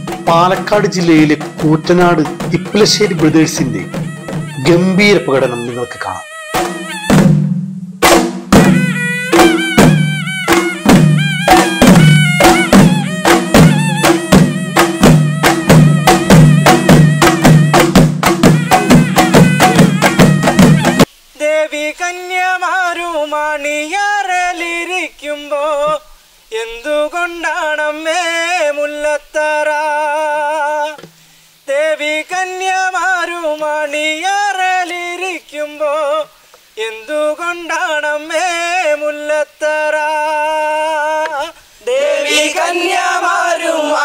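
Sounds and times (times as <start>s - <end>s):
voices singing: 0.0s - 7.2s, 31.7s - 44.0s
man singing unaccompanied: 0.0s - 7.3s, 8.6s - 44.0s.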